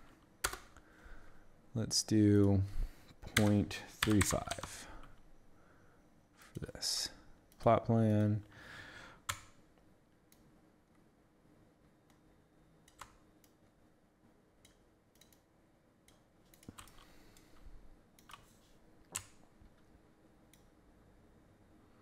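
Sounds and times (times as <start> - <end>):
computer mouse and keyboard clicks: 14.6 - 17.6, 18.2 - 19.4.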